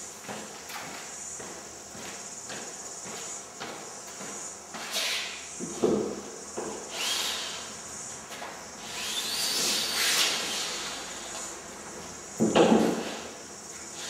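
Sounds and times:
footsteps in empty room: 0:00.0 - 0:06.9, 0:07.7 - 0:09.0
knock: 0:12.4 - 0:13.0.

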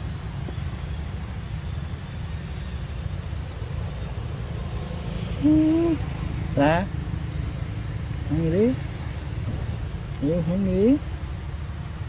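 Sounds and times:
short voiced call: 0:05.4 - 0:06.1.

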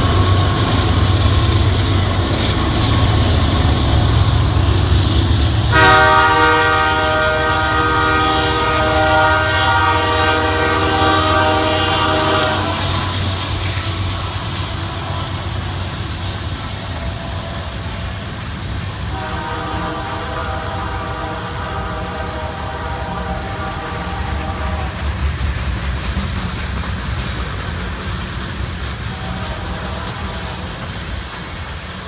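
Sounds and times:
rumble of rail cars rolling: 0:00.0 - 0:32.0
locomotive horn blast: 0:04.0 - 0:15.7, 0:19.1 - 0:25.0, 0:29.1 - 0:30.8.

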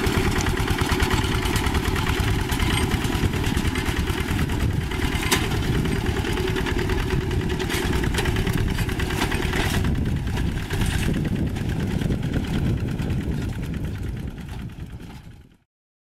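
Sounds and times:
diesel engine chugging: 0:00.0 - 0:15.6.

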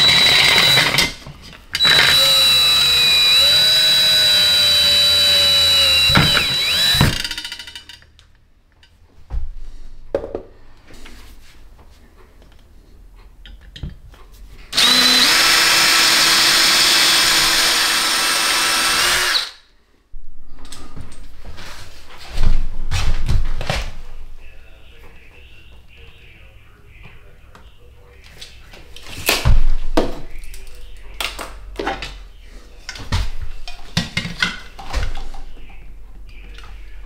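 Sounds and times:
cordless drill whine: 0:00.0 - 0:01.0, 0:01.8 - 0:07.4, 0:14.7 - 0:19.6.

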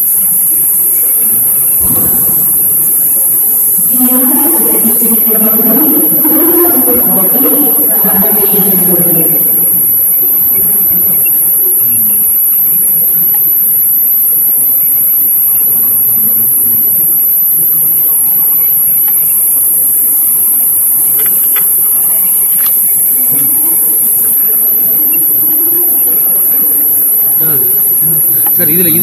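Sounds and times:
high-pitched hiss: 0:00.0 - 0:29.0
faint murmur of voices: 0:20.8 - 0:29.0.

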